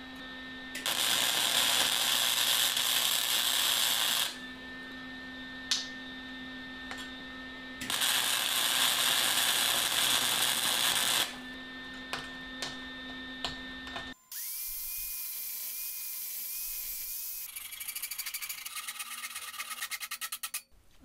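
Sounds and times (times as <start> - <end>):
welding arc crackling: 0.8 - 4.4, 7.8 - 11.4.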